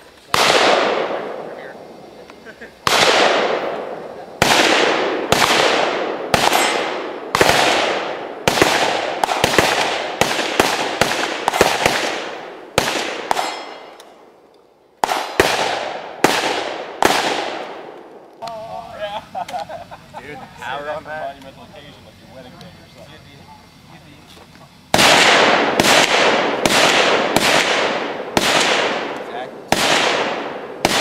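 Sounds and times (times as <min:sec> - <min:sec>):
rifle shots echoing: 0:00.3 - 0:02.1, 0:02.8 - 0:18.3, 0:24.9 - 0:31.0.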